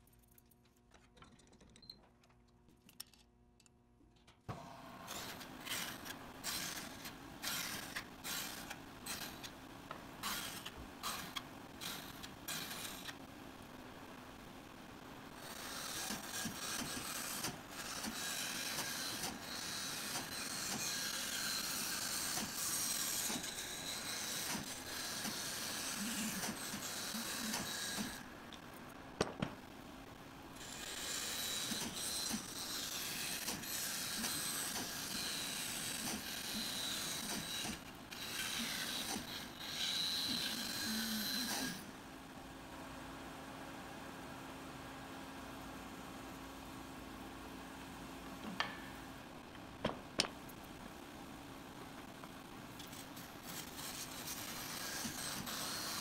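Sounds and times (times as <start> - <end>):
bandsaw running with low hum: 4.9 - 13.2, 15.2 - 28.5, 30.6 - 41.9, 52.8 - 56.0.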